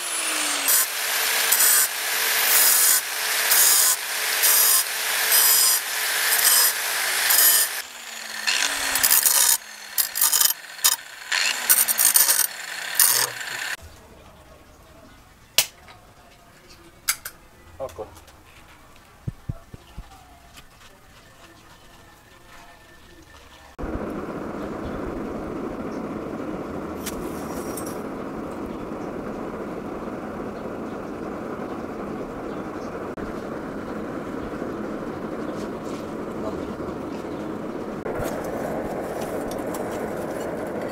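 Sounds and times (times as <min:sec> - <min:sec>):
angle grinder grinding steel: 0:00.0 - 0:13.8, 0:38.0 - 0:40.9
grinder motor spinning free: 0:00.0 - 0:13.8
fire crackle: 0:23.8 - 0:32.4, 0:37.7 - 0:40.9
forge fire roaring under blower: 0:23.8 - 0:40.9.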